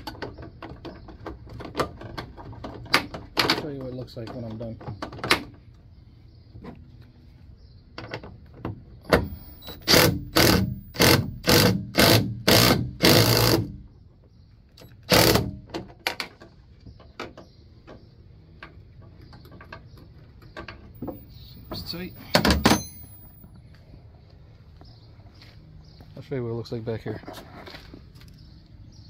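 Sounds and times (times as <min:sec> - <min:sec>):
cordless drill bursts: 0:09.3 - 0:13.7, 0:15.1 - 0:15.5.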